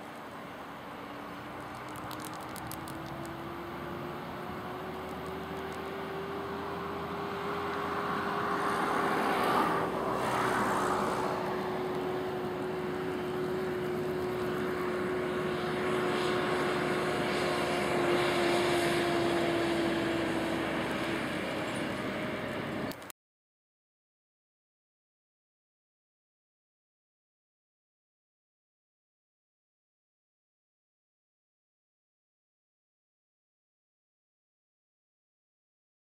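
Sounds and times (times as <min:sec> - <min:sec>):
distant engine drone: 0:00.0 - 0:23.1.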